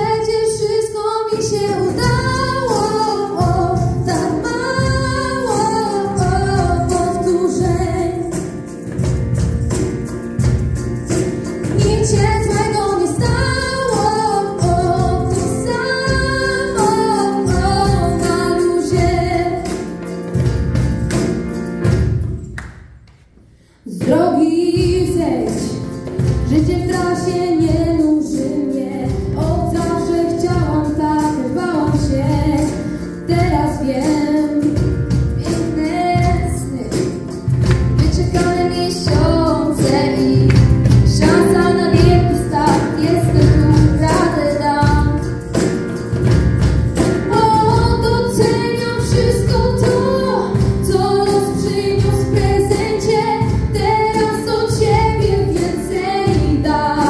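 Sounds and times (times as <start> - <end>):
keyboard: 0.0 - 22.6, 23.4 - 57.0
drums: 0.0 - 57.0
female voices singing: 47.4 - 57.0.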